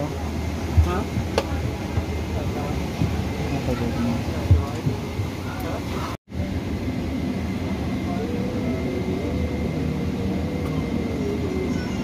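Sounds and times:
air-conditioning rush: 0:00.0 - 0:12.0
faint voices: 0:07.5 - 0:12.0.

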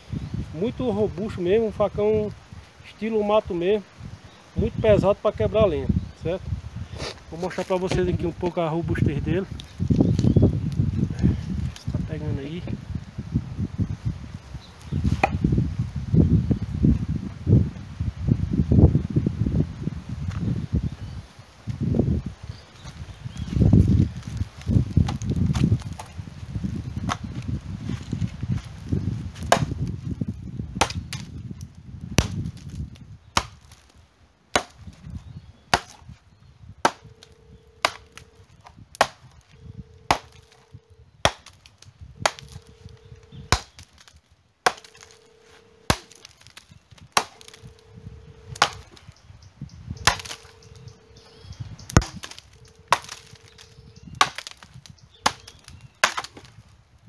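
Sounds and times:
machete chopping wood: 0:15.1 - 0:15.5, 0:27.0 - 0:27.3, 0:29.4 - 0:29.9, 0:30.8 - 0:31.4, 0:32.2 - 0:32.8, 0:33.4 - 0:33.9, 0:34.5 - 0:35.0, 0:35.7 - 0:36.1, 0:36.8 - 0:38.3, 0:39.0 - 0:39.4, 0:40.1 - 0:40.6, 0:41.2 - 0:42.7, 0:43.5 - 0:45.2, 0:45.9 - 0:47.8, 0:48.6 - 0:49.0, 0:50.0 - 0:50.6, 0:51.9 - 0:56.5.

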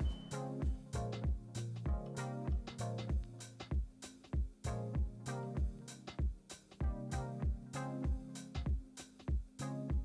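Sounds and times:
instrumental music with drum beat: 0:00.0 - 0:10.0.

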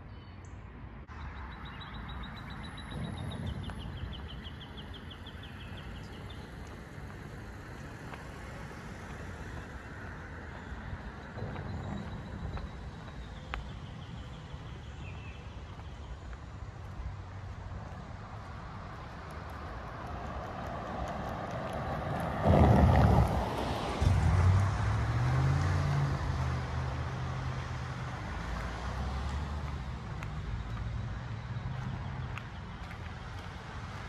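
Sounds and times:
traffic hum: 0:00.0 - 0:34.0
vehicles passing: 0:00.0 - 0:34.0.

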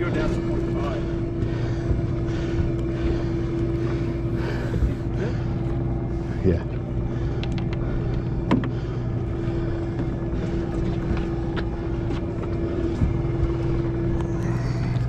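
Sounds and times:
boat engine hum: 0:00.0 - 0:15.0.

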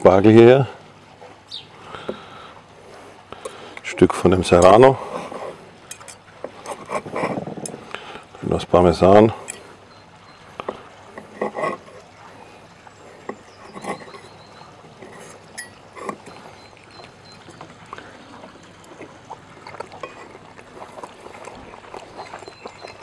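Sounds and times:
knife and fork clinking on plate: 0:05.9 - 0:06.2, 0:15.0 - 0:16.4.

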